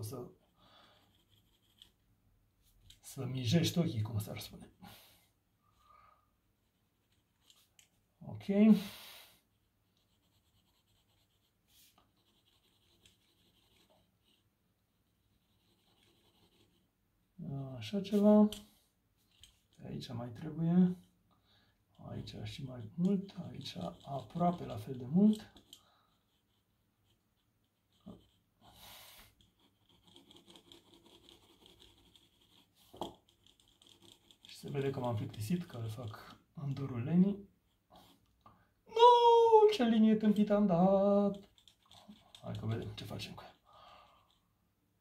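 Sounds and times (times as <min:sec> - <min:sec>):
pencil scratching on paper: 0:00.3 - 0:03.0, 0:06.6 - 0:07.7, 0:09.4 - 0:16.9, 0:22.5 - 0:37.0, 0:41.2 - 0:44.4.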